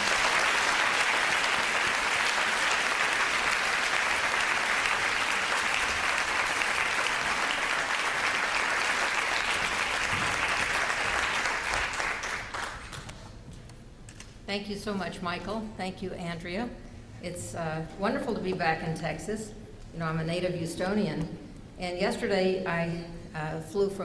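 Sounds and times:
audience applauding: 0.0s - 13.1s.

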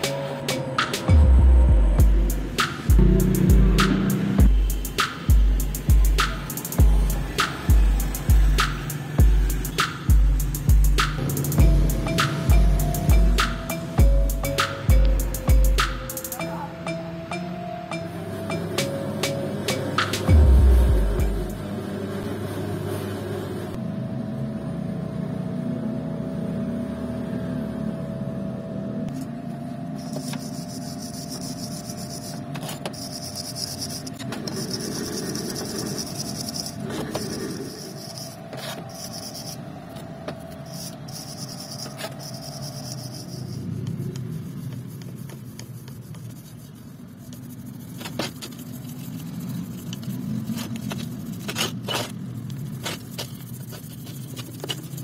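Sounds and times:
steady background hum: 0.0s - 26.2s, 27.2s - 55.0s
brushes scrubbing metal: 2.2s - 14.6s, 30.0s - 55.0s.

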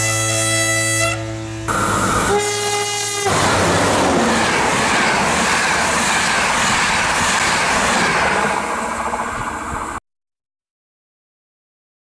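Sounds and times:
locomotive horn: 0.0s - 4.3s
train passing at speed: 1.0s - 10.0s.

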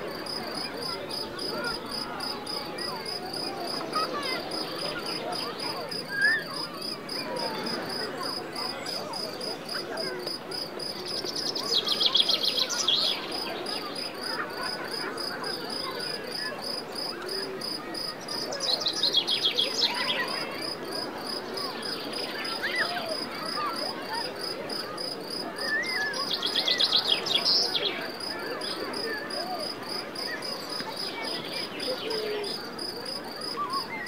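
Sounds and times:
crickets chirping: 24.4s - 34.0s.

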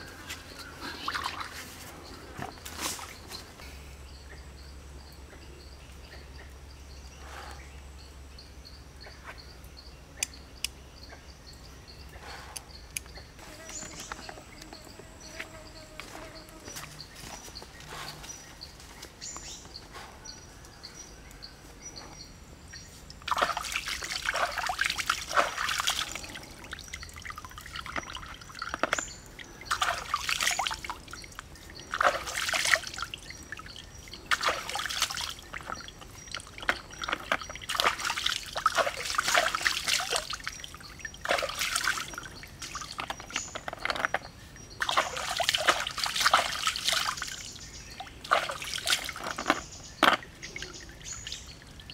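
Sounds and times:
water splashing and trickling: 0.0s - 3.7s, 22.8s - 51.9s.

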